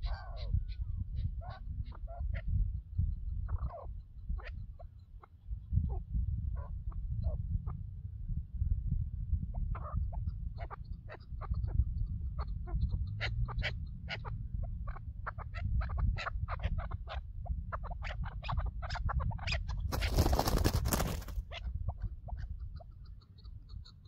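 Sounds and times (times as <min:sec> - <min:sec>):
partridges calling: 0:00.0 - 0:06.0, 0:09.8 - 0:24.0.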